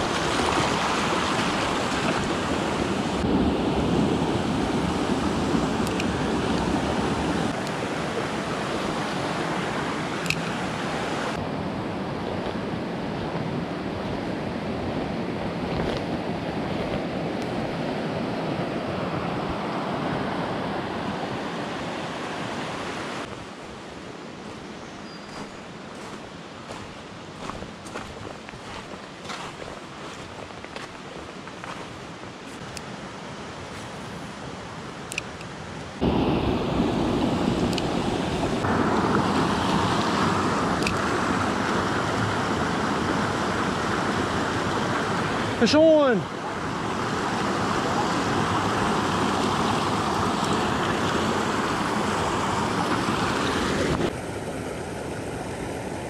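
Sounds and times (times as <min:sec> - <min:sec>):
creek rushing over rocks: 0:00.0 - 0:11.4, 0:25.3 - 0:34.8, 0:36.0 - 0:56.0.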